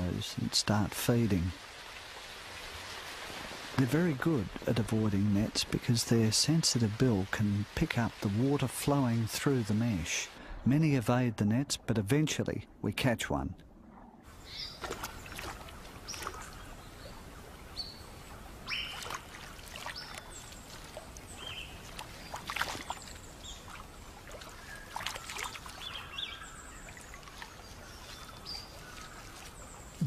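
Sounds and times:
river water splashing: 0.0s - 10.4s, 14.3s - 30.0s.

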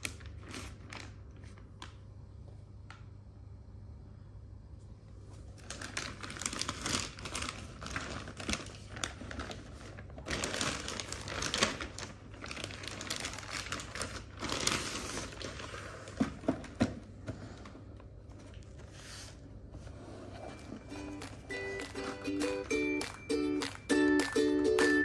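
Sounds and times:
plastic bag rustling and crinkling: 0.0s - 1.9s, 5.4s - 19.4s.

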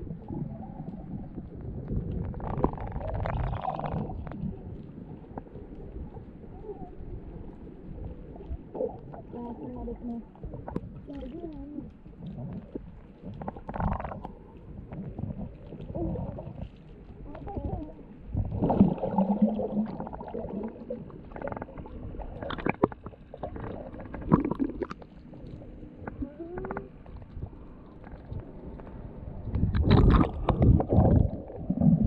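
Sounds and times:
underwater rumble of moving water: 0.0s - 32.0s
sharp underwater clicks and knocks: 21.3s - 31.4s.

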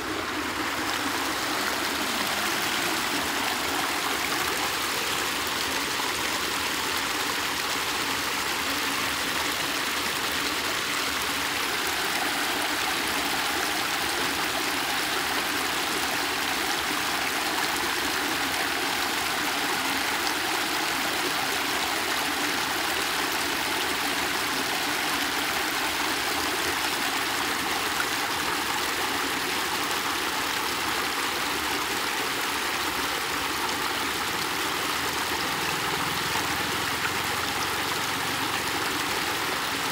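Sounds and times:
water rushing over ledge: 0.0s - 28.4s.

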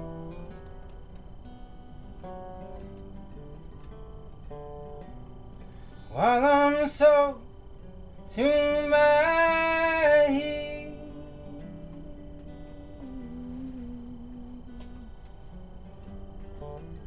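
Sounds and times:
acoustic guitar: 0.0s - 17.0s
man singing held notes: 8.3s - 15.4s.

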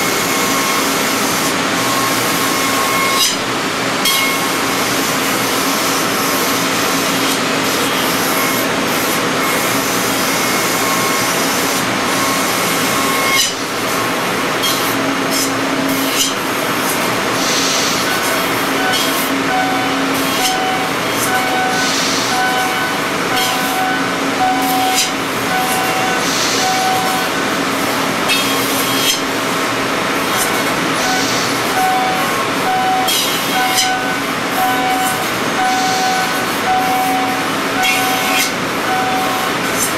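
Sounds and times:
pulsing whine: 0.0s - 16.6s, 17.8s - 39.7s
machine whining tones: 0.0s - 39.9s
milling machine cutting hiss: 0.0s - 39.9s.

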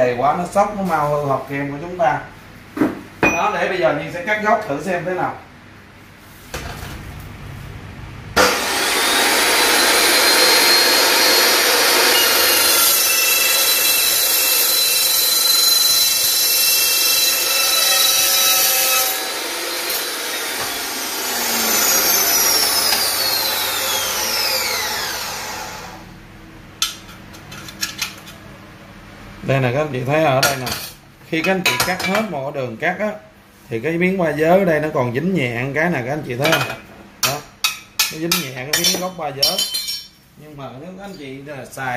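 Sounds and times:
saw blade spinning down whine: 8.4s - 26.1s
metal cutting saw grinding screech: 8.5s - 26.0s.

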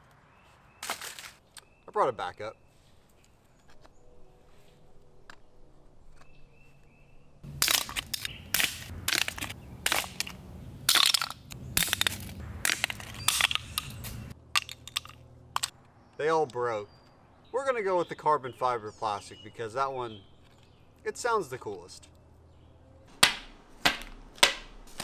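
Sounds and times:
hammer smashing plastic on rock: 7.5s - 10.3s, 10.9s - 14.8s, 23.2s - 25.0s
plastic cracking and breaking: 7.6s - 15.7s.

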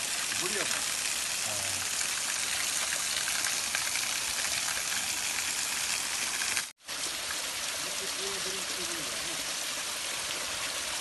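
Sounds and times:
small waterfall splashing on stones: 0.0s - 11.0s.

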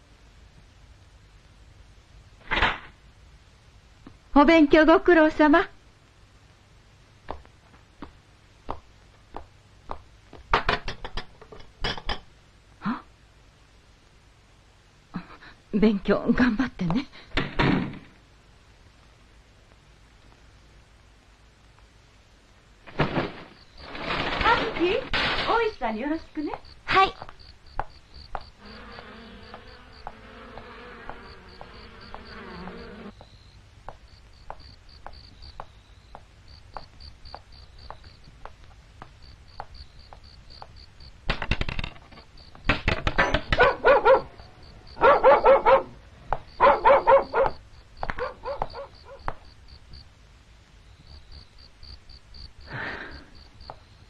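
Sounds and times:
night insects chirping: 22.6s - 54.0s
light footsteps: 26.5s - 40.8s
dog barking: 43.5s - 44.4s, 45.0s - 46.0s, 46.6s - 49.3s.

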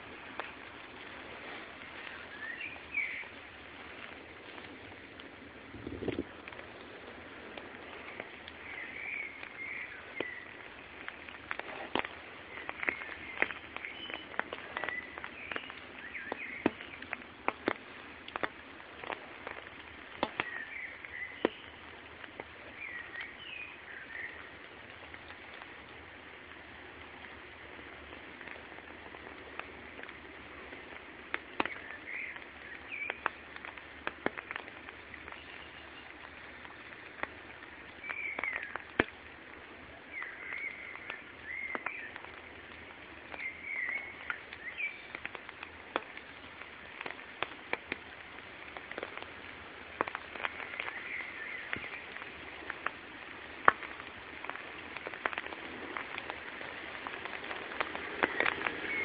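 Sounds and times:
steady background hiss: 0.0s - 59.0s
water dripping from trees: 0.0s - 59.0s
small bird chirping: 12.4s - 17.1s, 43.3s - 45.2s.

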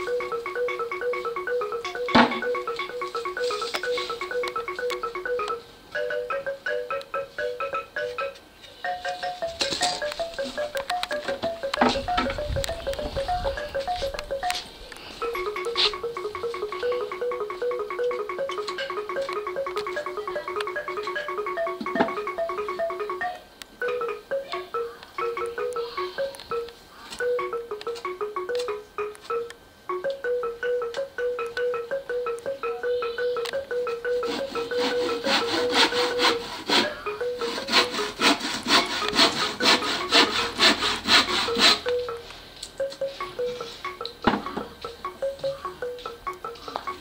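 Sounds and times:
xylophone melody: 0.0s - 47.0s
handsaw cutting wood: 34.3s - 41.9s.

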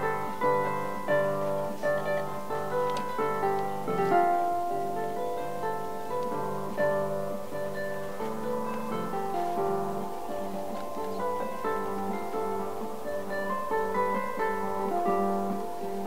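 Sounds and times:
harp playing: 0.0s - 16.0s.

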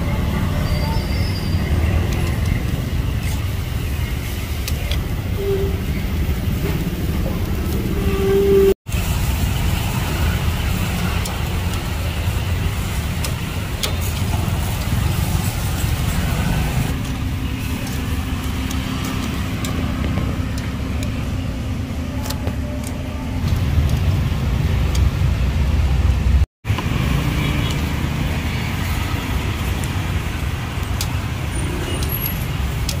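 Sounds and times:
road traffic rumble: 0.0s - 33.0s
vehicle engine hum: 0.0s - 33.0s.

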